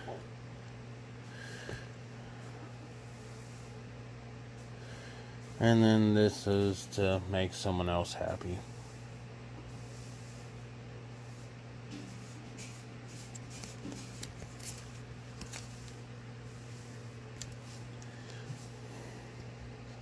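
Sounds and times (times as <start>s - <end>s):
paper banknotes rustling: 13.1s - 16.0s.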